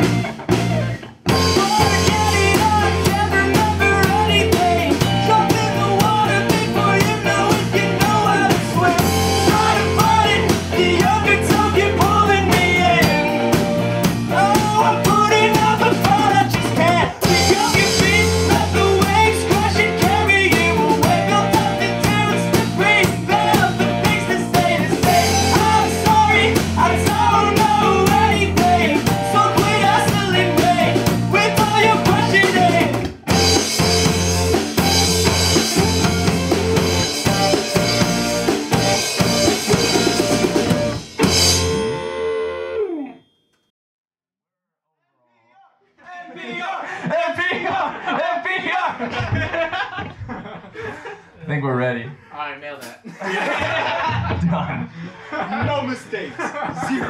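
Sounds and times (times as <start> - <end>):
live rock band playing: 0.0 - 43.1, 53.5 - 55.0
person singing: 0.7 - 33.2.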